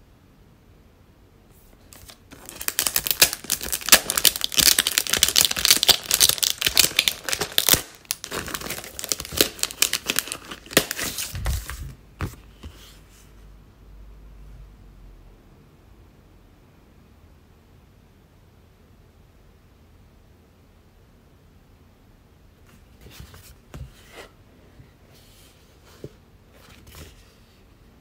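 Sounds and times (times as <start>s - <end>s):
plastic bag crinkling: 1.9s - 11.8s.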